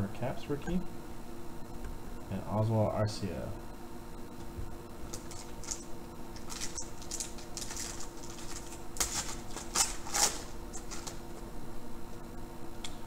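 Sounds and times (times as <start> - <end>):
foil wrapper crinkling and tearing: 6.4 - 11.2.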